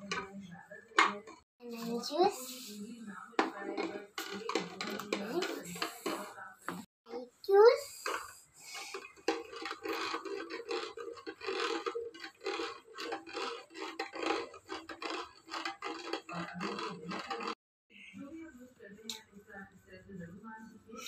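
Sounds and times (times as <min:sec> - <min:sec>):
spoon stirring in plastic cup: 0:00.0 - 0:06.9, 0:07.7 - 0:17.6.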